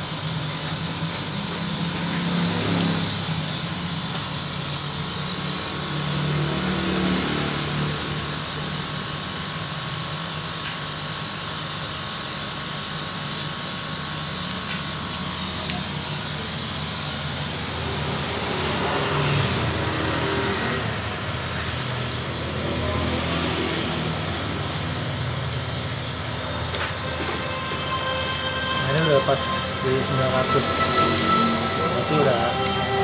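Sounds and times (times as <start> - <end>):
mechanical hum with low drone: 0.0 - 33.0
thin steady tones: 24.2 - 33.0.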